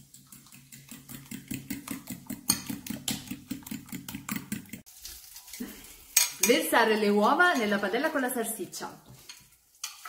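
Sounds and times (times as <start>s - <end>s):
fork beating eggs in glass bowl: 0.0s - 4.9s.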